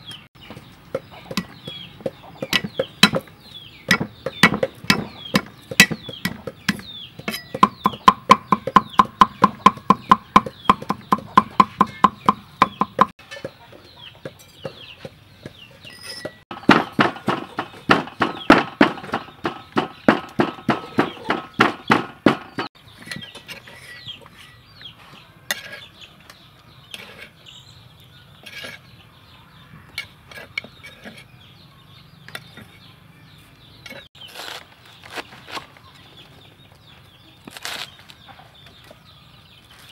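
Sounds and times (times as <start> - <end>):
chickens peeping and clucking: 0.0 - 39.9
pestle pounding in clay mortar: 0.5 - 13.6, 16.5 - 22.7
cleaver chopping on wooden block: 1.3 - 3.3, 3.9 - 13.1, 16.5 - 22.7.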